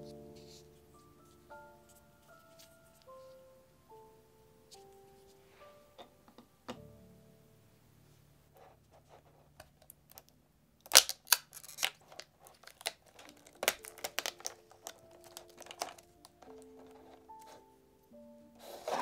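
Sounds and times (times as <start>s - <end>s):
soft background music: 0.0s - 9.4s, 11.6s - 19.0s
plastic packaging crinkling: 10.8s - 17.6s.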